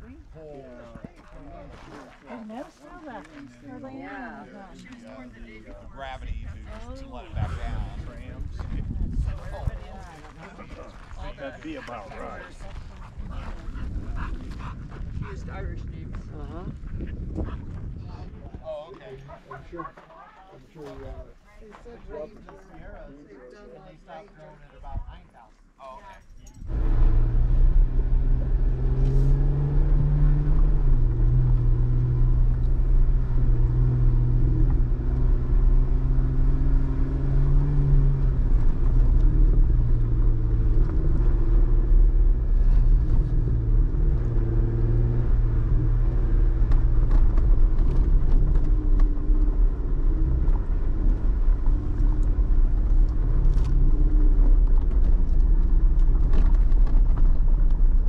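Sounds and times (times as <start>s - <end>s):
low rumble: 26.6s - 58.0s
vehicle engine running: 26.6s - 58.0s.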